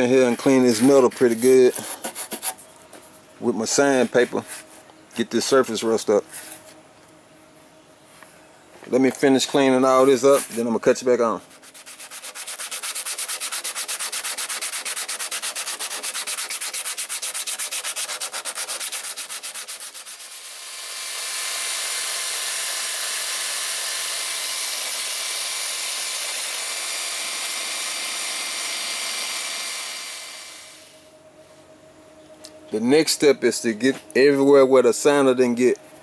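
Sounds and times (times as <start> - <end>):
sandpaper rubbing on metal: 0.0 - 2.6, 9.8 - 20.5
drill wire brush whining: 12.0 - 31.0.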